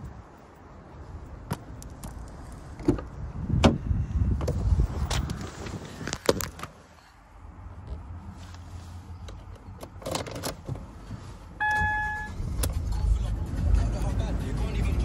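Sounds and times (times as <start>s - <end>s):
handling clicks and knocks in car: 1.4s - 6.7s, 9.2s - 12.8s
ignition key clicks: 11.6s - 12.3s
dashboard warning chime: 11.6s - 12.4s.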